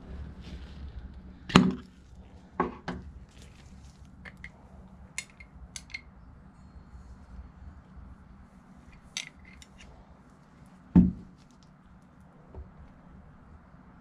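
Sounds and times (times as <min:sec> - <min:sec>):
faint high glass clinks: 0:06.4 - 0:08.2.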